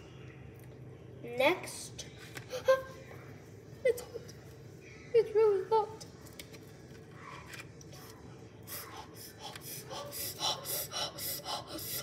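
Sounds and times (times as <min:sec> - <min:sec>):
boy huffing breaths: 0:08.7 - 0:12.0.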